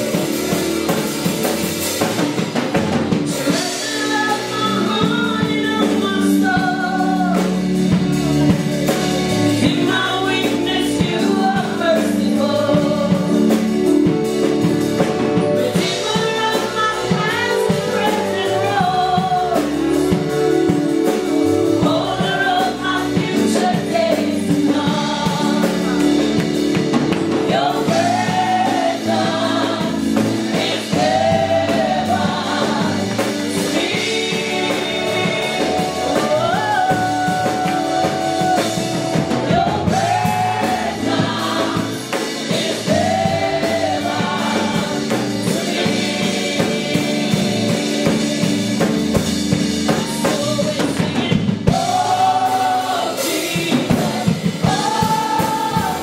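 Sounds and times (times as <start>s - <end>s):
group singing worship song: 0.0s - 56.0s
instrumental backing: 0.0s - 56.0s.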